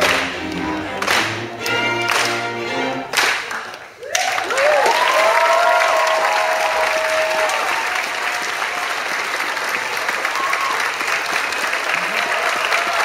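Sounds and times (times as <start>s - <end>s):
audience applauding: 0.0s - 13.0s
voices cheering: 4.0s - 9.2s, 10.1s - 11.0s, 11.9s - 13.0s.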